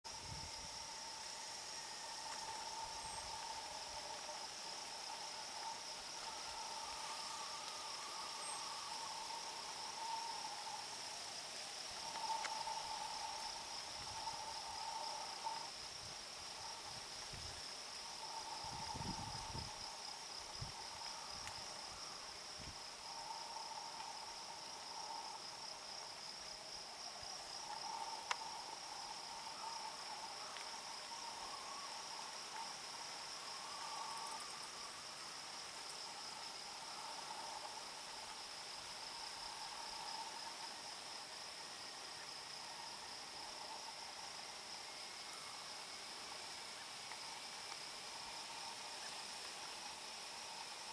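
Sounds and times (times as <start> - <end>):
insects chirring: 0.1 - 50.9
lower trilling call: 1.1 - 11.0.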